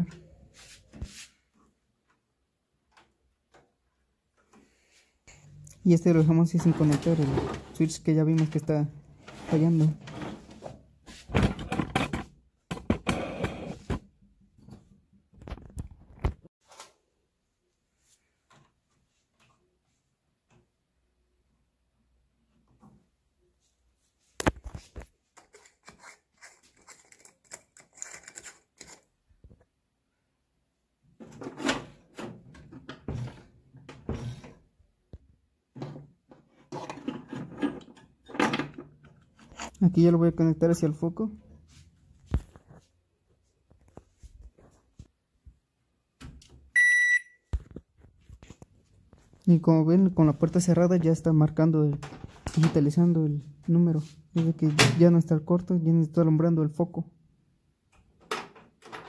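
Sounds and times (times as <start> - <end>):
knocks rattles and scraping: 6.5 - 13.1
hands handling wiring: 24.4 - 29.8.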